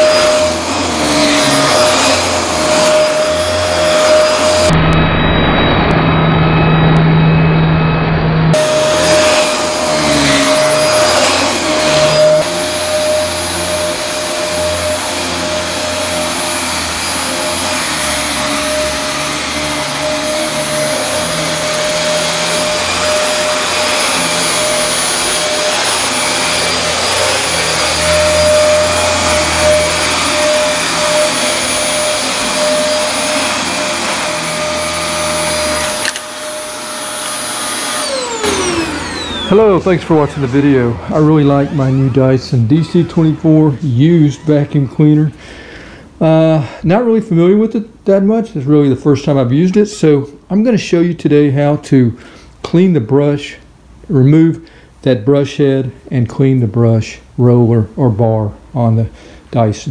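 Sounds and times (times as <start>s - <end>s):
vacuum cleaner running: 0.0s - 47.2s.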